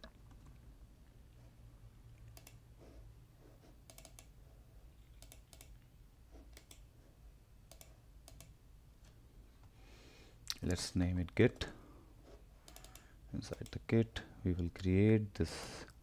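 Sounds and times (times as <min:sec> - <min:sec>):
low steady hum: 0:00.0 - 0:16.0
mouse and keyboard clicks: 0:02.2 - 0:02.6, 0:03.9 - 0:04.3, 0:05.0 - 0:05.8, 0:12.7 - 0:13.8.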